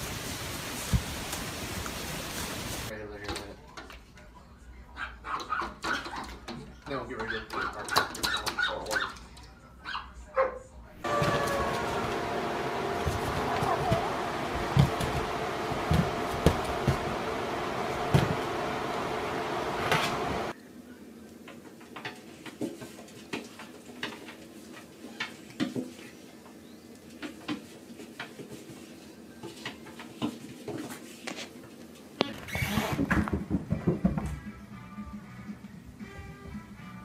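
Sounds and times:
steady hum: 0:11.0 - 0:20.6.

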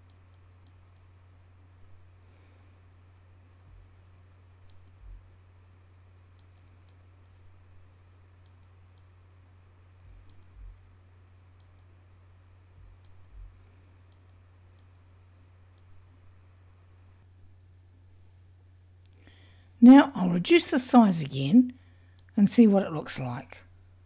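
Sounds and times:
steady low hum: 0:00.0 - 0:24.0
soft low thumps: 0:03.6 - 0:04.0, 0:04.6 - 0:05.4, 0:10.0 - 0:11.0, 0:12.7 - 0:13.7.

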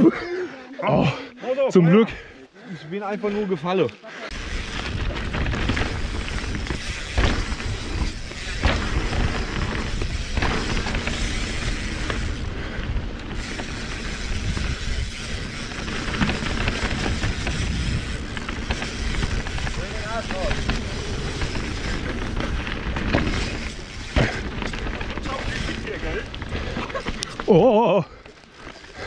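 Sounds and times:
bike tyres rattling on rough ground: 0:04.3 - 0:29.0
wind buffeting microphone: 0:04.5 - 0:26.8
bike knocking over bumps: 0:04.6 - 0:12.4, 0:15.5 - 0:27.5.

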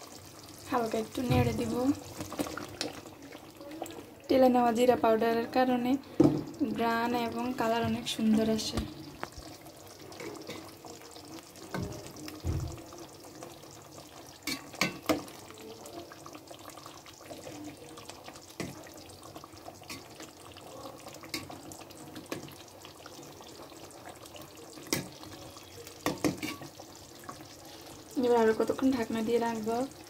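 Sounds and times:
curry simmering in a pot: 0:00.0 - 0:30.0
metal spoon stirring: 0:26.0 - 0:26.7.

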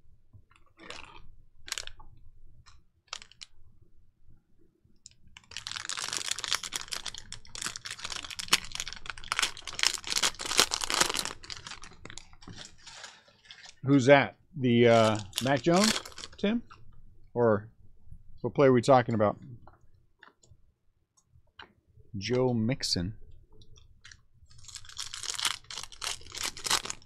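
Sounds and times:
plastic wrapper crinkling and clicking: 0:00.5 - 0:03.6, 0:05.0 - 0:13.8, 0:14.9 - 0:17.0, 0:23.5 - 0:27.0.

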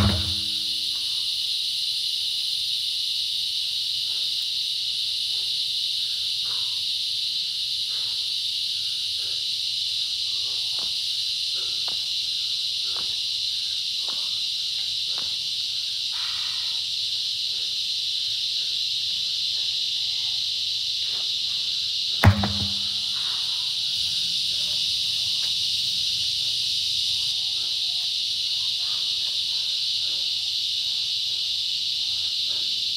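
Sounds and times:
truck tire thudding on ground: 0:00.0 - 0:00.9, 0:22.2 - 0:23.2
high insect drone: 0:00.0 - 0:32.9.

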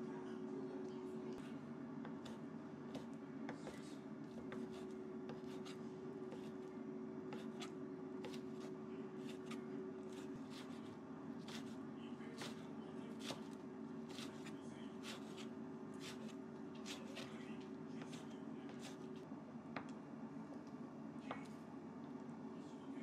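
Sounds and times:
steady low hum: 0:00.0 - 0:23.0
knife chopping on wooden board: 0:07.3 - 0:10.8, 0:11.4 - 0:11.7, 0:12.4 - 0:12.6, 0:13.2 - 0:17.3.

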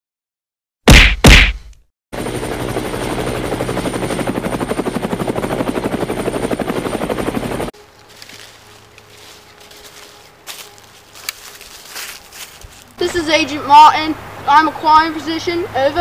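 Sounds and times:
helicopter rotor chopping: 0:02.2 - 0:11.5.

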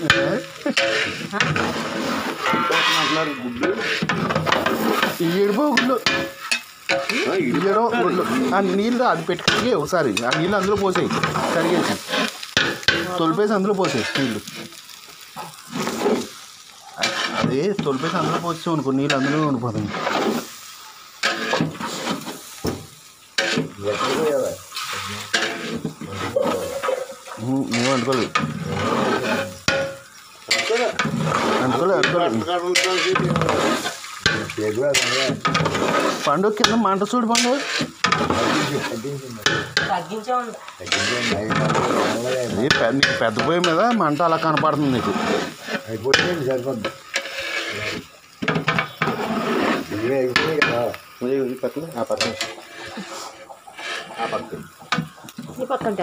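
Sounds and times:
people talking: 0:00.0 - 0:01.6, 0:02.5 - 0:04.1, 0:04.7 - 0:06.3, 0:07.0 - 0:12.1, 0:12.9 - 0:14.7, 0:16.8 - 0:20.0, 0:23.5 - 0:29.6, 0:30.5 - 0:35.6, 0:36.2 - 0:47.0, 0:49.8 - 0:53.1, 0:54.2 - 0:54.7, 0:55.4 - 0:56.0
food sizzling in pot: 0:00.0 - 0:56.0
utensil scraping pot: 0:00.0 - 0:56.0.

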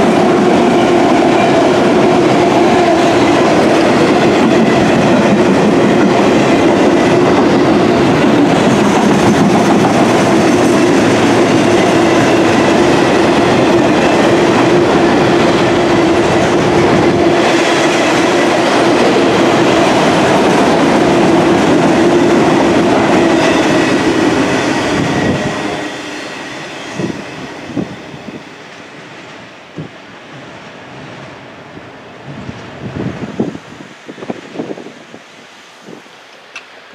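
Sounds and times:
train wheels knocking: 0:00.0 - 0:27.8
freight train rumbling past: 0:00.0 - 0:36.9.

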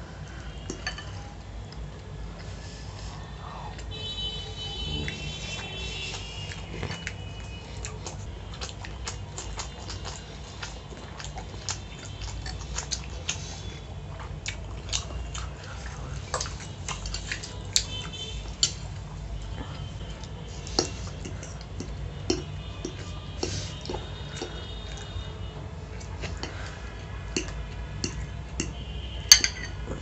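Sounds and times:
fork clinking and scraping on plate: 0:00.7 - 0:01.2, 0:29.3 - 0:29.8
wet chewing and mouth clicks: 0:04.8 - 0:30.0.

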